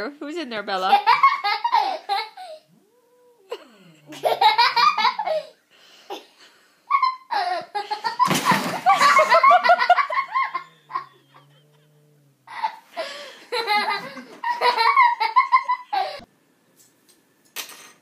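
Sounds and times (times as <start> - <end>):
people laughing hard: 7.3 - 11.7, 12.5 - 16.3.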